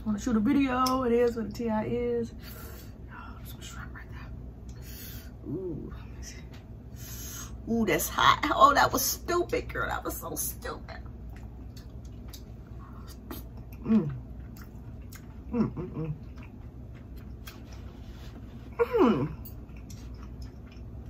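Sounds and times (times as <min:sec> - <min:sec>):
woman chewing: 0:11.3 - 0:21.0
woman moaning with closed mouth: 0:13.8 - 0:14.3, 0:15.5 - 0:16.2, 0:18.7 - 0:19.5.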